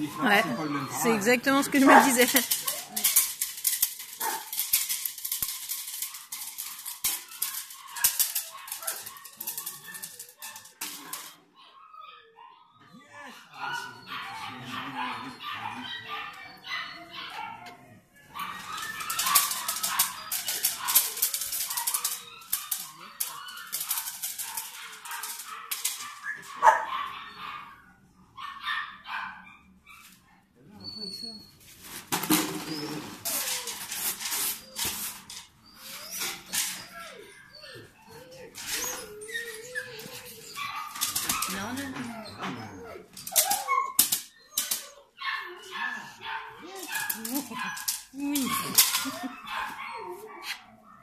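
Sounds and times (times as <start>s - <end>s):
puppy barking and yipping: 0.0s - 3.2s, 4.2s - 4.6s, 13.5s - 17.7s, 18.4s - 30.0s, 35.8s - 50.8s
puppy growling: 0.0s - 3.4s, 12.9s - 18.1s, 45.0s - 50.8s
training stick rattling: 1.0s - 11.3s, 18.7s - 26.1s.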